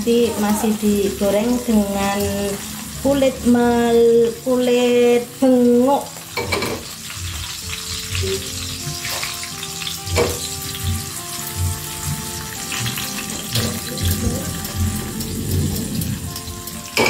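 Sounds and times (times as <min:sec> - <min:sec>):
oil sizzling and crackling in pan: 0:00.0 - 0:17.0
music with steady beat: 0:06.2 - 0:17.0.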